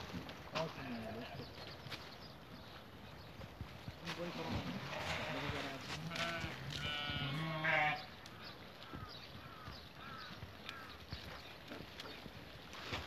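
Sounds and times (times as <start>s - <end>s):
sheep bleating: 4.8s - 8.1s.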